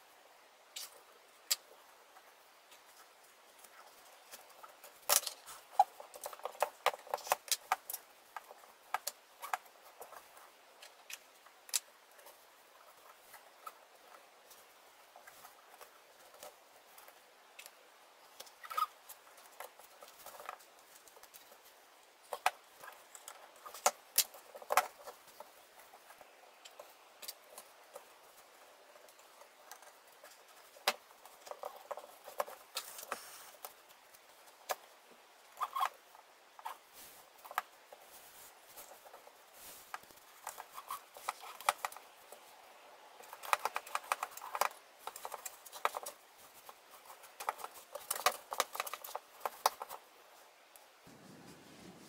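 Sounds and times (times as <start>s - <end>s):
fabric rustling: 36.6s - 42.5s, 51.0s - 52.0s.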